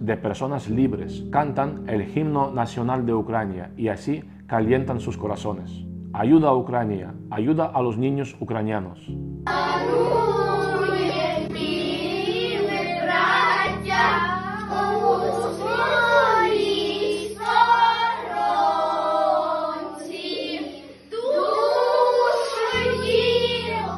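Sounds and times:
children singing together: 0:09.5 - 0:23.9.

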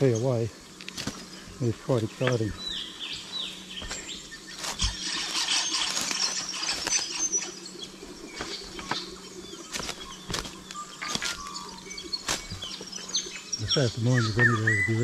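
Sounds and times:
birds chirping: 0:00.0 - 0:15.0
footsteps on rocks and leaves: 0:00.8 - 0:01.4, 0:03.2 - 0:13.3
brush rustling: 0:00.8 - 0:14.4.

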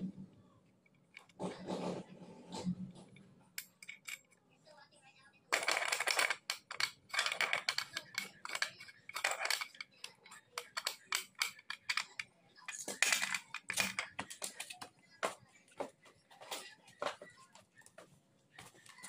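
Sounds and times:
metal parts clinking: 0:03.6 - 0:04.3, 0:05.5 - 0:14.8.

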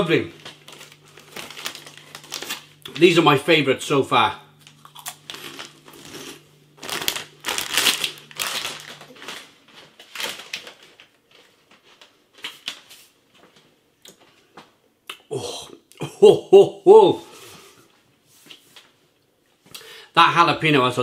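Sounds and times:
crisps crunching while chewing: 0:00.3 - 0:03.2, 0:04.6 - 0:12.8.

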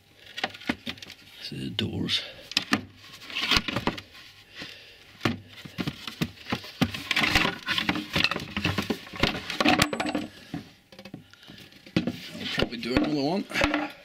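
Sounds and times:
wooden panels knocking and scraping: 0:02.6 - 0:04.1, 0:05.2 - 0:14.0.

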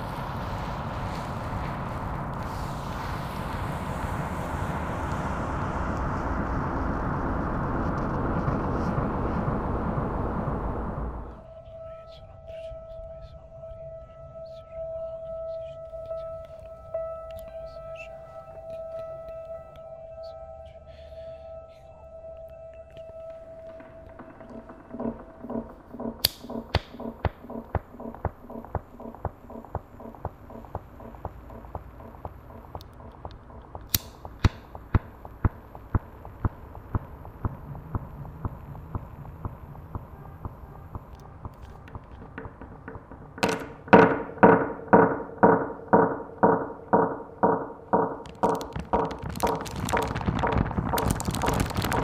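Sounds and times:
rough noise: 0:00.0 - 0:11.5, 0:45.8 - 0:52.0
soft pulsing tone: 0:00.0 - 0:43.4
clock ticking: 0:24.1 - 0:43.8.

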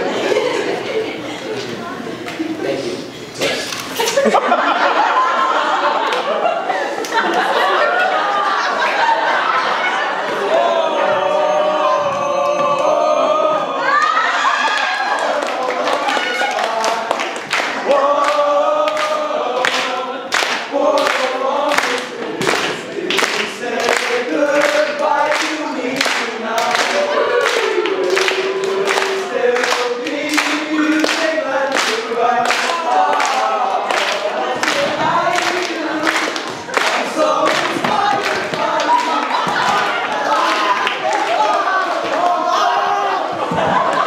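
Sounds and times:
voices singing together: 0:04.1 - 0:44.0
rhythmic hand claps: 0:14.6 - 0:42.5.

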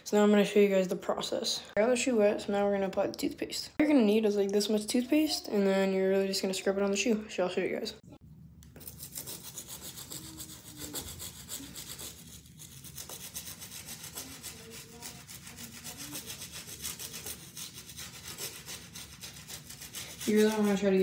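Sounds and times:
toothbrush scrubbing shoe: 0:08.8 - 0:21.0.

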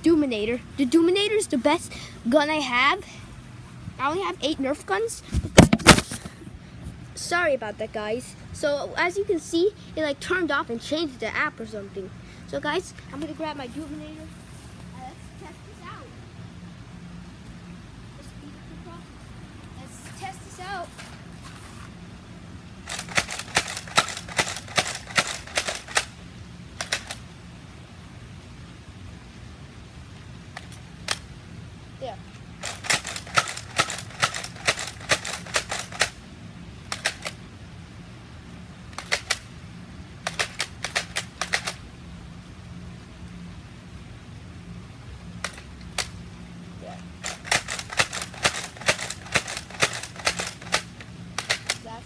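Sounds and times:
priming clicks: 0:22.9 - 0:26.1, 0:32.6 - 0:36.2, 0:47.2 - 0:51.8
toy blaster shots: 0:22.9 - 0:26.1, 0:32.6 - 0:36.2, 0:47.2 - 0:51.8.

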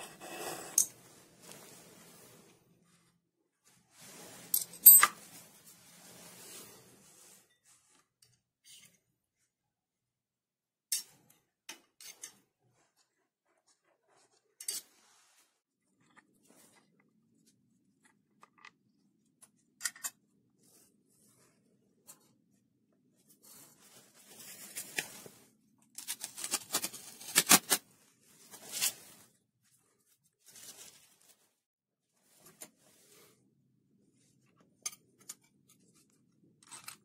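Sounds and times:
masking tape peeled and crumpled: 0:24.2 - 0:29.2.

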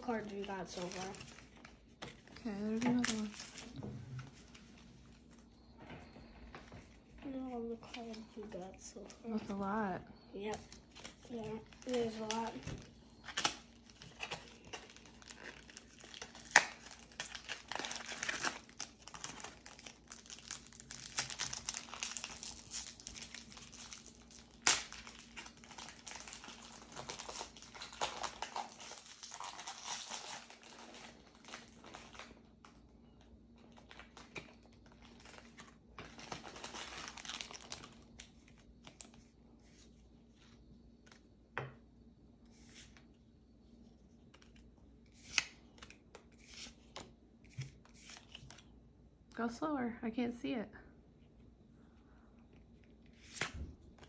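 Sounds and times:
foil wrapper crinkling: 0:00.0 - 0:03.8, 0:10.6 - 0:32.8, 0:33.6 - 0:39.2
trading cards rustling: 0:00.0 - 0:05.7, 0:10.4 - 0:32.4.

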